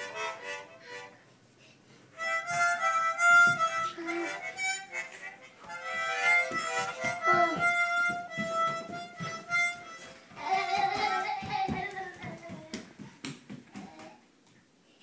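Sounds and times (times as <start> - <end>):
children blowing harmonicas: 0.0 - 1.2, 2.1 - 11.4.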